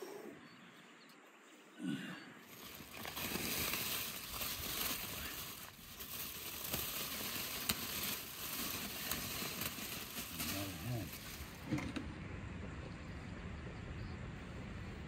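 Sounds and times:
aluminium foil crinkling: 0:02.4 - 0:11.6.

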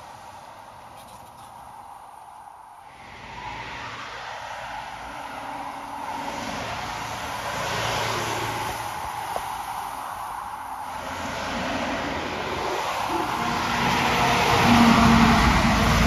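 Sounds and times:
road traffic: 0:00.0 - 0:16.0
garbage truck driving past: 0:11.0 - 0:16.0.

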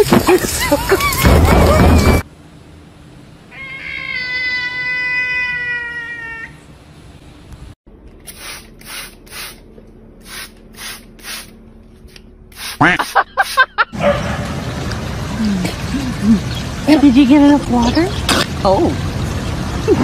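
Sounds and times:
cat meowing: 0:03.5 - 0:06.6
spray bottle squirting: 0:08.2 - 0:09.6, 0:10.2 - 0:11.6, 0:12.5 - 0:13.7.

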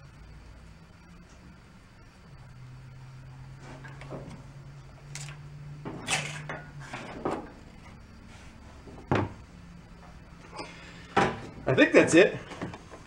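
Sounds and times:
metal parts scraping and rattling: 0:05.1 - 0:07.5.

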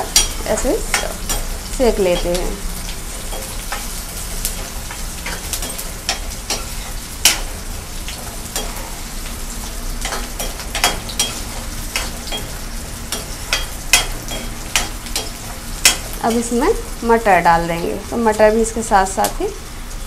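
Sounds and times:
spoon scraping and clinking on pan: 0:00.0 - 0:02.6, 0:10.0 - 0:16.2
vegetables sizzling in hot oil: 0:00.0 - 0:20.0.

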